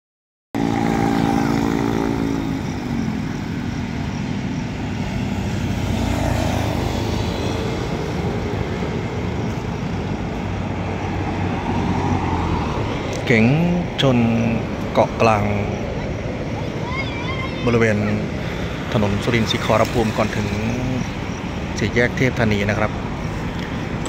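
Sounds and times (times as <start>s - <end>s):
motorcycle passing close: 0.6s - 9.4s
road rumble: 0.6s - 24.0s
vehicle passing by: 0.6s - 24.0s.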